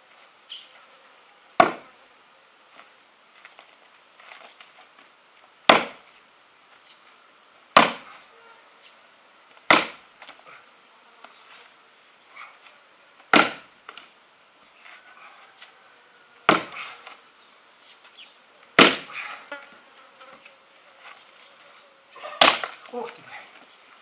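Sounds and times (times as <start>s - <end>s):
axe chopping wood: 1.6s - 1.8s, 5.7s - 6.0s, 7.8s - 8.1s, 9.7s - 10.0s, 13.3s - 13.7s, 16.5s - 16.9s, 18.8s - 19.2s, 22.4s - 22.8s.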